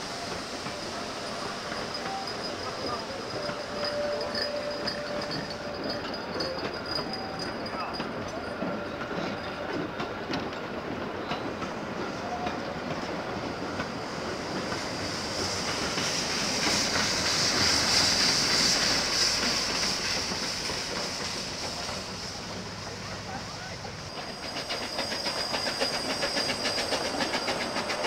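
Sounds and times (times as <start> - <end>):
steam hissing from locomotive: 0.0 - 28.0
train wheels clicking over rail joints: 0.2 - 23.0, 24.1 - 28.0.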